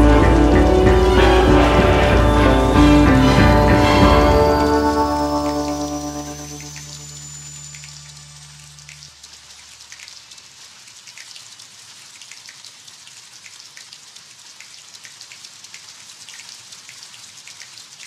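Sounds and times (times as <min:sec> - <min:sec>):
low music note: 0:00.0 - 0:09.0
rain pattering: 0:00.0 - 0:18.0.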